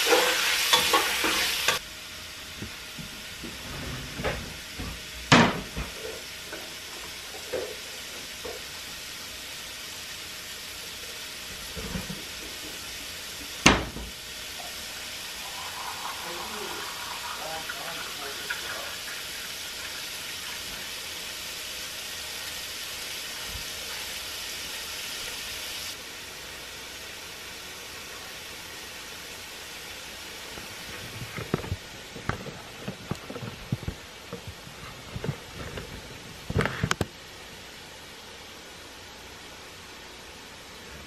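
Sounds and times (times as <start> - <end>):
chicken sizzling in a frying pan: 0.0 - 3.0, 4.6 - 31.8
tap water running: 11.0 - 26.0.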